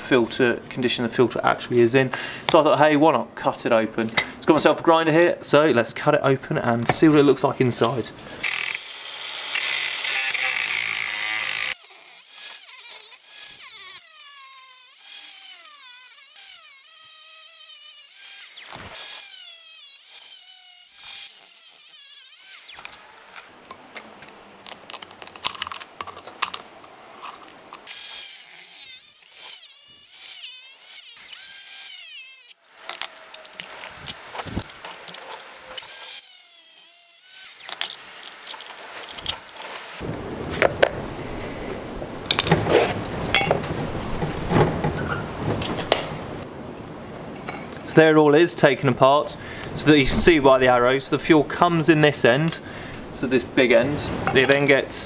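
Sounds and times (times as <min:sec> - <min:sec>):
angle grinder cutting metal: 0:08.4 - 0:23.5, 0:27.8 - 0:40.0.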